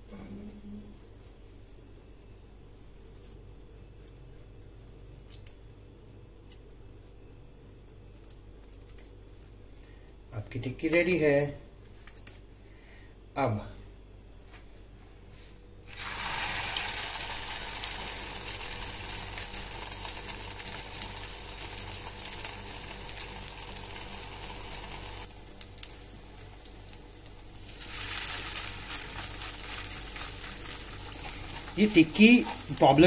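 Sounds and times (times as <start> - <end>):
patties sizzling in oil: 15.8 - 33.0.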